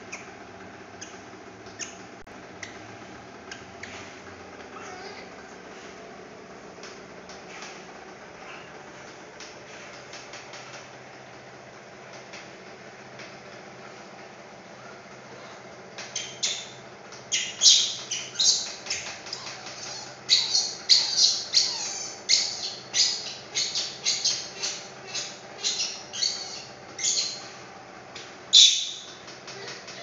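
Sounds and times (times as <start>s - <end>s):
baby monkey screaming: 17.3s - 27.6s, 28.5s - 30.0s.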